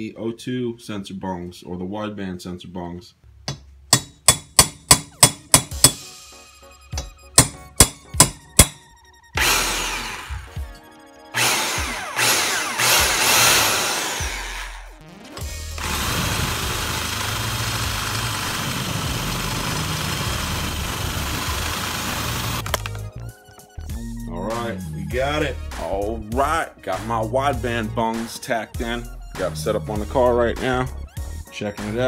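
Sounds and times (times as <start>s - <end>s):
hammer striking metal punch: 3.5s - 6.1s, 7.0s - 8.8s
electric drill boring metal: 9.4s - 22.6s.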